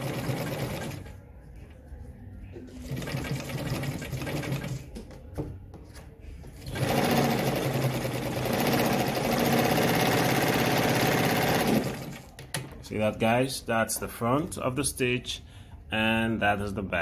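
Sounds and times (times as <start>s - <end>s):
sewing machine stitching: 0.0s - 1.2s, 2.7s - 4.9s, 6.6s - 12.4s.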